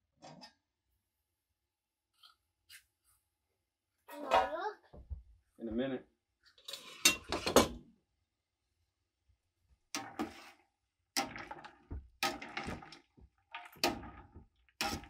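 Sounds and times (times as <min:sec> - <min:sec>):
spoon stirring water in pot: 0:09.9 - 0:15.0.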